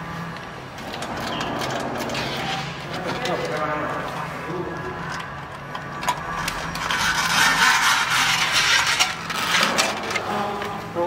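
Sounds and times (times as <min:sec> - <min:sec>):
scraping on metal parts: 0:00.7 - 0:10.8
ratchet ratcheting: 0:05.0 - 0:10.3.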